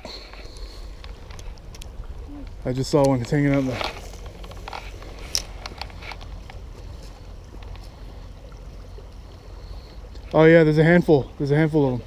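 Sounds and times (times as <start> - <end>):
wind rumble on microphone: 0.5 - 9.1.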